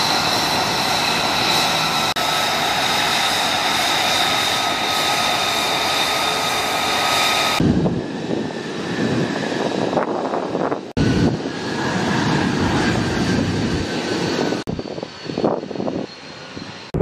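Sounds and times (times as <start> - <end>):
jet engine idling with whine: 0.0 - 17.0
low jet rumble: 0.0 - 17.0.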